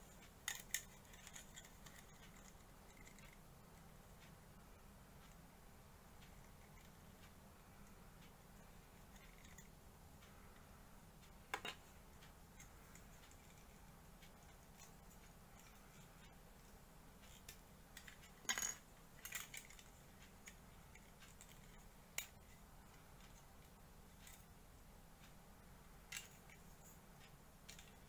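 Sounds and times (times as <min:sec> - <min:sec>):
plastic model parts clicking: 0:00.2 - 0:03.4, 0:26.1 - 0:26.6, 0:27.6 - 0:28.0.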